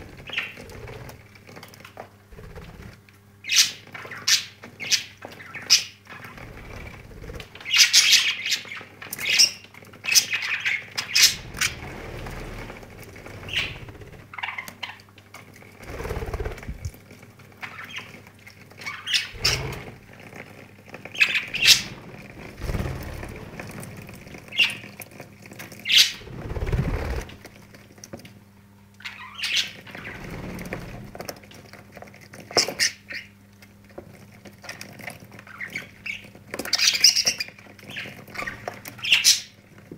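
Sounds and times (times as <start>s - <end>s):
budgerigars chirping and squawking: 0.0s - 1.0s, 2.4s - 15.0s, 17.6s - 18.2s, 18.8s - 20.0s, 21.1s - 23.4s, 24.4s - 24.9s, 25.8s - 27.4s, 29.0s - 31.0s, 35.5s - 39.6s.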